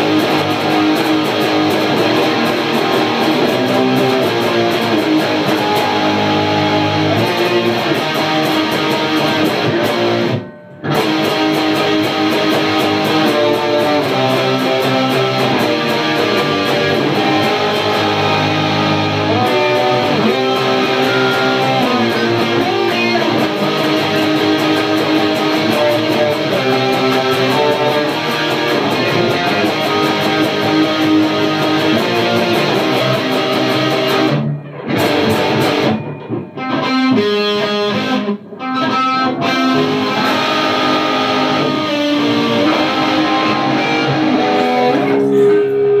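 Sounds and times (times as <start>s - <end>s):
two electric guitars playing: 0.0s - 46.0s.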